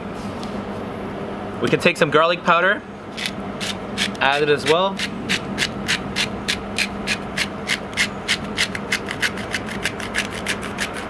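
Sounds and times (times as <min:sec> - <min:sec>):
spice grinder rasping: 0:03.1 - 0:11.0.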